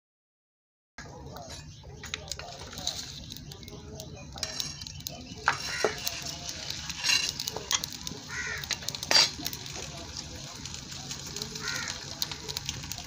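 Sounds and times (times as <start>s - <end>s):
flatbread sizzling on hot iron: 1.0s - 13.0s
crow cawing: 5.5s - 6.1s, 8.2s - 8.9s, 11.6s - 12.5s.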